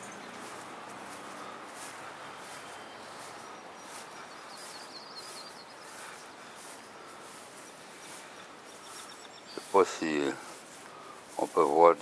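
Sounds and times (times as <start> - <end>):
footsteps swishing through grass: 0.0 - 12.0
high bird chirps: 2.3 - 10.6.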